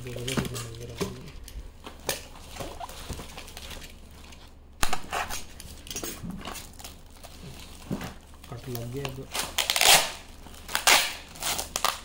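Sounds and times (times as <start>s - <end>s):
packaging taps and rustles: 4.8s - 9.7s.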